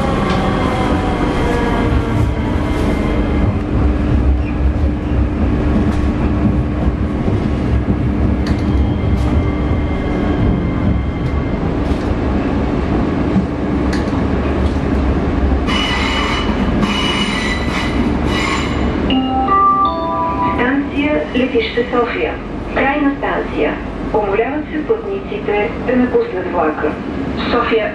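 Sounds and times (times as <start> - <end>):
rail clicks: 0.0 - 19.2
train rumble and hum: 0.0 - 27.9
train wheels squealing: 15.7 - 18.9.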